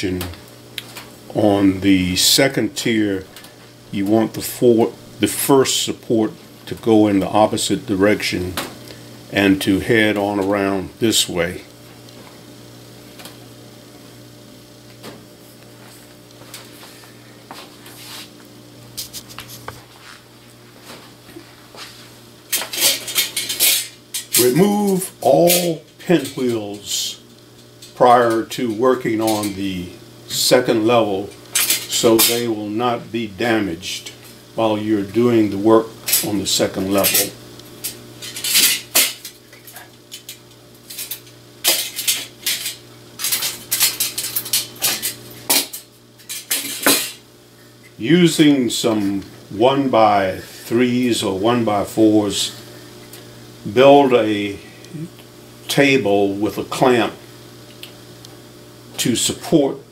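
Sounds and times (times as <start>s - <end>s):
steady low hum: 0.0s - 59.9s
metal blades clattering: 41.0s - 47.2s.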